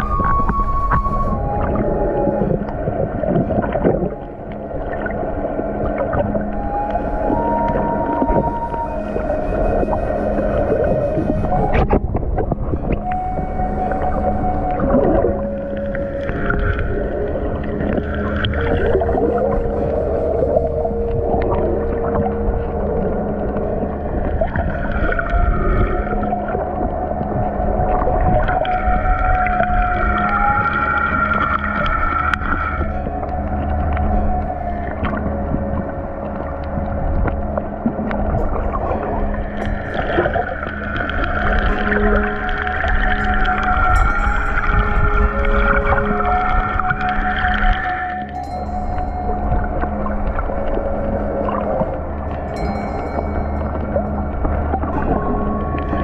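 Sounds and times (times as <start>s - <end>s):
underwater clicks: 0.0s - 8.8s
higher humming tone: 0.0s - 56.0s
muffled underwater rumble: 0.0s - 56.0s.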